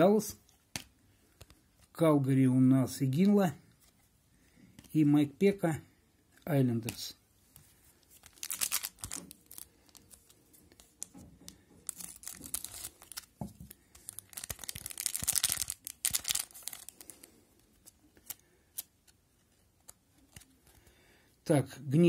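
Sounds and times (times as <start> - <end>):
wrapper crinkling: 7.9 - 18.9
wrapper tearing: 8.2 - 11.1, 11.8 - 18.9.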